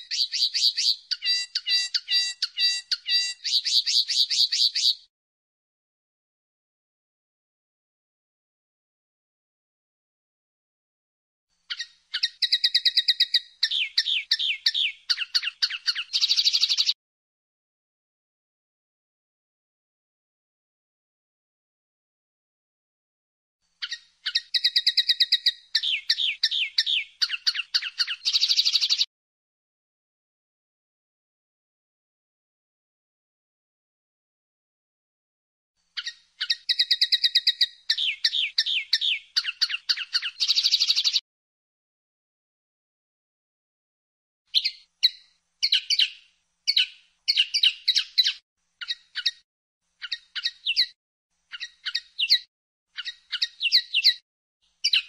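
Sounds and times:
linnet singing: 0.0 - 5.1, 11.7 - 17.0, 23.8 - 29.1, 36.0 - 41.2, 44.5 - 49.4, 50.0 - 55.0.

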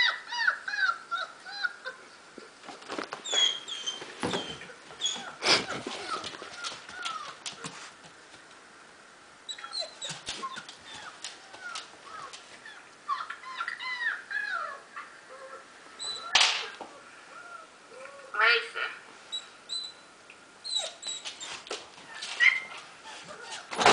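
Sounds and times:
puppies whimpering and squealing: 0.0 - 2.0, 3.2 - 7.4, 9.5 - 16.4, 20.6 - 23.9.

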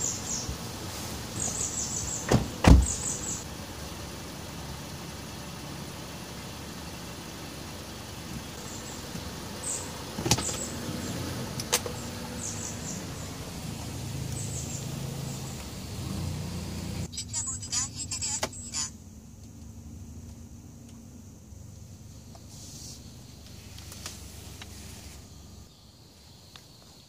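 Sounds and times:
car door shutting: 0.4 - 3.4, 10.1 - 12.8.

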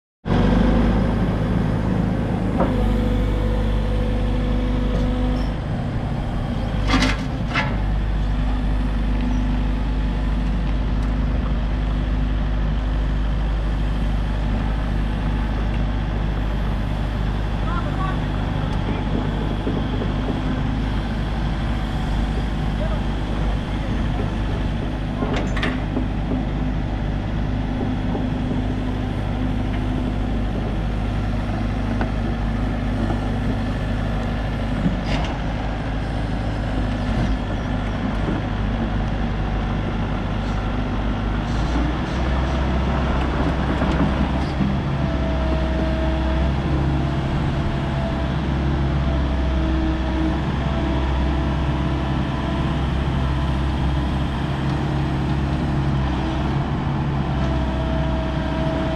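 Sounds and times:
excavator diesel engine running: 0.2 - 58.9.

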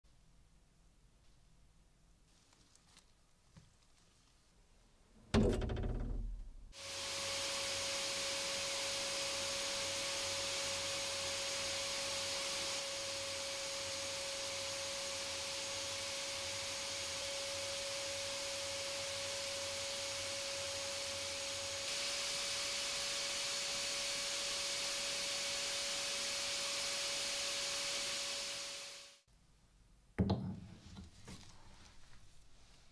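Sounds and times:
sandblasting gun hissing: 6.8 - 15.6, 21.0 - 29.2.

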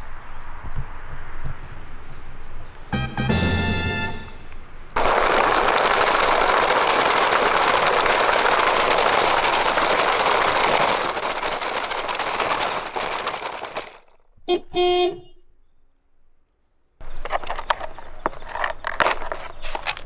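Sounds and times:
toy truck wheels rolling over leaves: 5.0 - 14.2.

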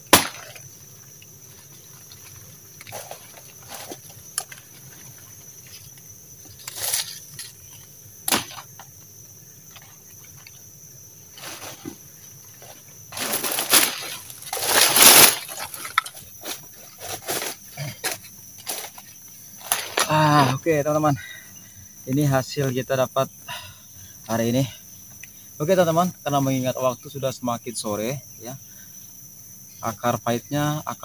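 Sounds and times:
machete blows: 0.0 - 0.6, 8.3 - 8.6
insects chirring: 0.0 - 31.0
rustle of dry leaves and vines: 0.1 - 20.7.

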